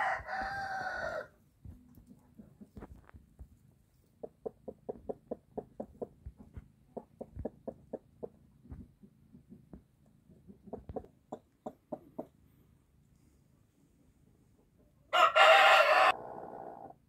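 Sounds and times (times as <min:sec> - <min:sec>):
hen clucking softly: 0:09.0 - 0:12.5.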